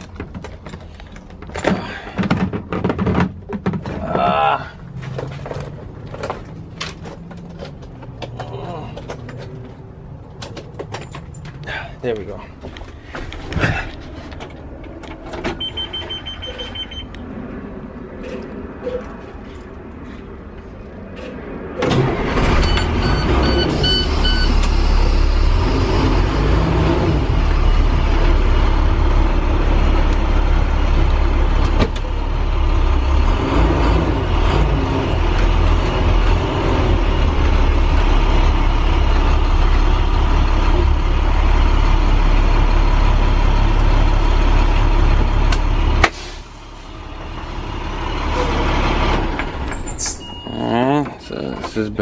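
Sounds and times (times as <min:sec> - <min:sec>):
bus diesel engine running: 0:03.4 - 0:52.0
high beeps: 0:15.6 - 0:17.1, 0:50.1 - 0:50.7.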